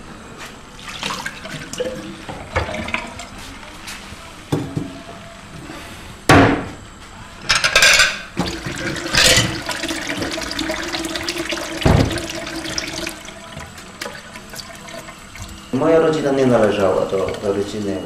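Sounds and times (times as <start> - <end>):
dishes clinking and splashing: 0.9 - 3.4, 7.5 - 15.7, 16.5 - 18.0
tap running into steel sink: 11.8 - 12.4
sponge washing plate: 16.5 - 17.8.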